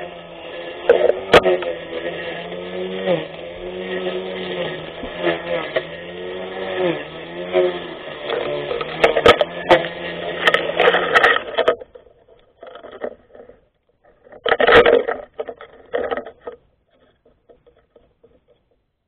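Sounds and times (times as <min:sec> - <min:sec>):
electric grass cutter running: 0:00.0 - 0:13.1.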